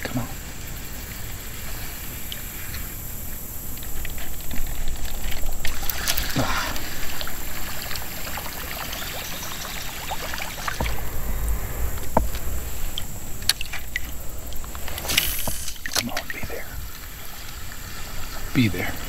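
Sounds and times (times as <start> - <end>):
water trickling and lapping: 0.0 - 19.0
paddle splashing: 3.3 - 19.0
low rumble: 9.9 - 18.1.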